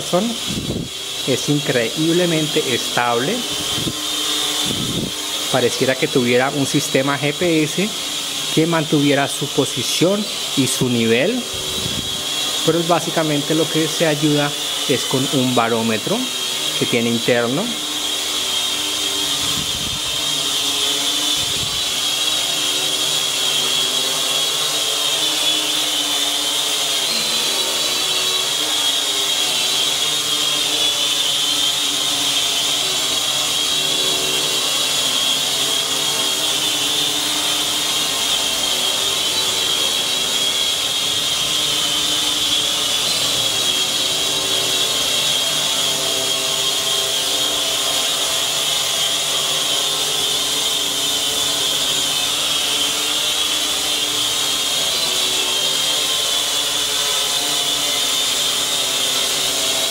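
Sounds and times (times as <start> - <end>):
drone motors whining: 0.0 - 59.9.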